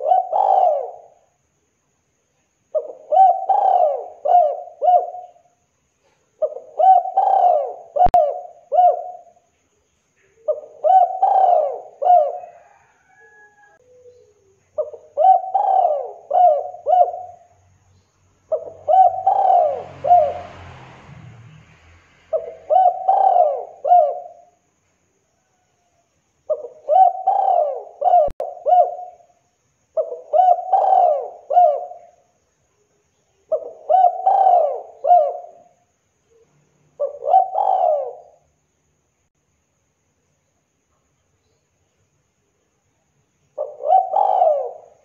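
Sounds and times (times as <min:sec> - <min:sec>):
dove cooing: 0:00.0 - 0:01.3, 0:02.7 - 0:09.4, 0:10.2 - 0:17.6, 0:18.5 - 0:20.4, 0:22.3 - 0:24.6, 0:26.5 - 0:29.4, 0:30.0 - 0:32.2, 0:33.5 - 0:38.4, 0:43.6 - 0:45.0.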